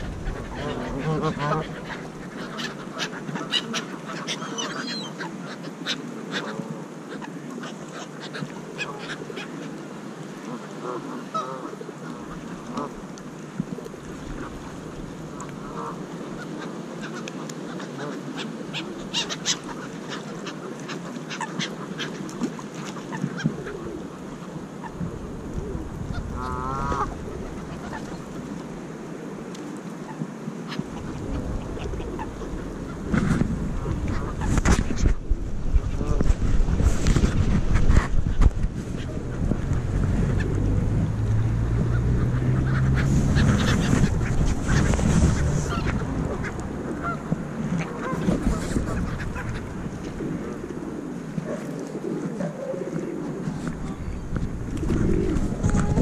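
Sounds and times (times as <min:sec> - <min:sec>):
geese honking: 0:00.0 - 0:05.3, 0:39.0 - 0:50.0
goose calling: 0:00.0 - 0:05.3, 0:41.5 - 0:49.7
steady low rumble: 0:35.2 - 0:50.9, 0:53.8 - 0:56.0.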